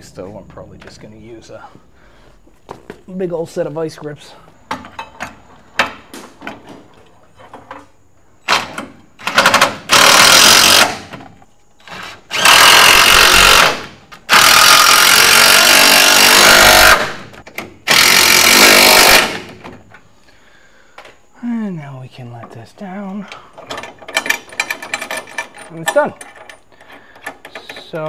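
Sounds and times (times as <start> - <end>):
impact wrench hammering bolts: 8.5 - 11.2, 23.6 - 26.6.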